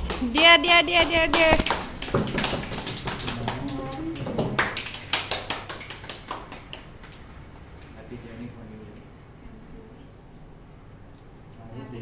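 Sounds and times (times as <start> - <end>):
people clapping: 0.0 - 7.7.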